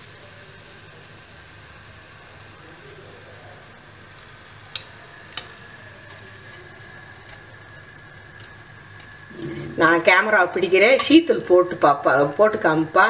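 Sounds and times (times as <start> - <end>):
faint steady hum: 0.0 - 13.0
metal utensil clicking on pan: 4.7 - 6.6, 10.9 - 11.4.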